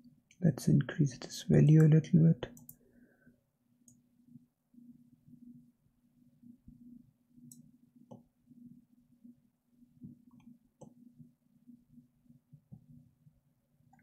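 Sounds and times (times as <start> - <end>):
faint low hum: 0.0 - 14.0
computer mouse clicks: 2.5 - 2.8, 7.4 - 8.3.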